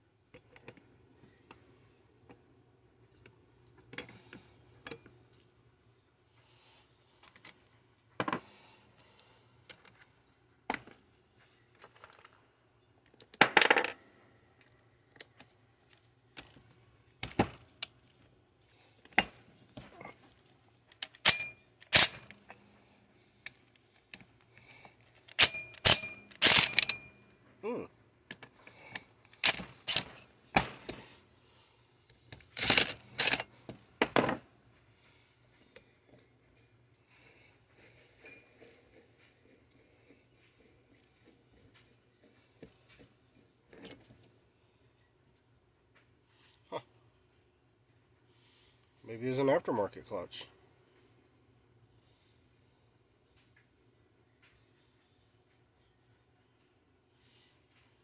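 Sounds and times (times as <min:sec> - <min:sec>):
metal parts and tools clinking: 0:11.6 - 0:16.6, 0:20.9 - 0:22.7, 0:23.4 - 0:27.3, 0:28.3 - 0:31.1, 0:32.3 - 0:34.4, 0:35.5 - 0:44.5.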